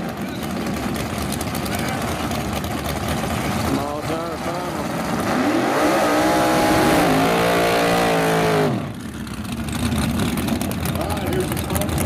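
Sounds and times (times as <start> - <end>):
car engine revving hard: 4.1 - 9.0.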